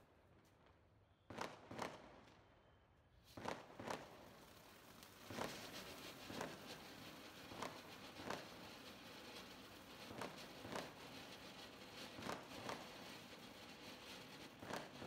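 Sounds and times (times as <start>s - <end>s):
firework crackles and pops: 1.3s - 2.4s, 3.2s - 15.0s
firework fountain hissing: 3.3s - 15.0s.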